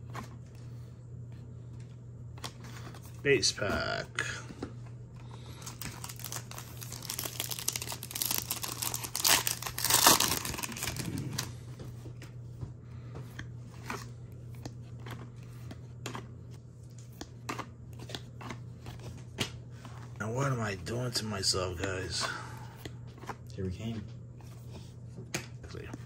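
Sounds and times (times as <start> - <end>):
foil wrapper tearing and crinkling: 5.5 - 11.5
cards clicking and tapping: 16.9 - 19.6.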